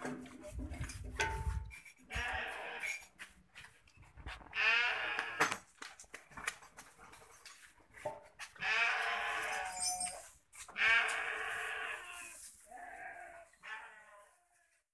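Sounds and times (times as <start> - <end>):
goats bleating: 2.1 - 2.9, 4.5 - 5.4, 8.6 - 9.9, 10.7 - 14.6.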